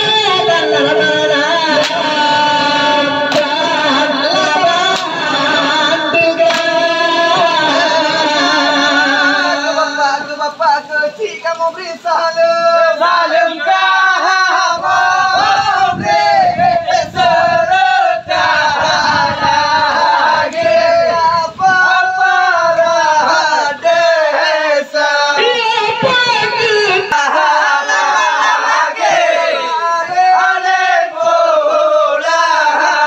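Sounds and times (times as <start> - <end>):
man singing through microphone: 0.0 - 33.0
body percussion claps and slaps: 1.8 - 2.0, 3.3 - 3.6, 4.9 - 5.2, 6.4 - 6.8.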